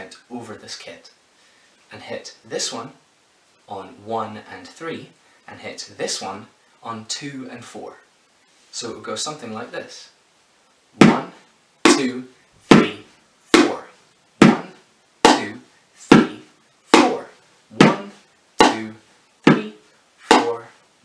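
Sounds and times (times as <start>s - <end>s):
wooden spoons beating pans: 17.0s - 17.2s, 17.8s - 18.9s.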